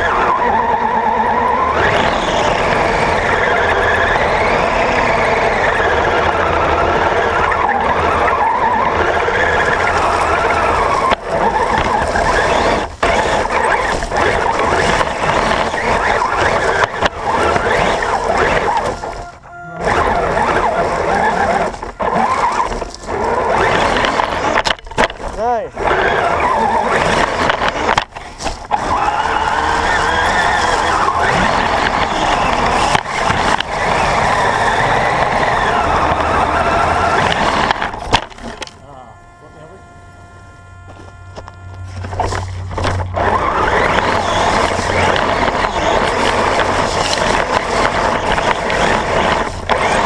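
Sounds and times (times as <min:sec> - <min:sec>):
toy truck drivetrain whine: 0:00.0 - 0:50.0
tyres rushing over dirt: 0:00.0 - 0:50.0.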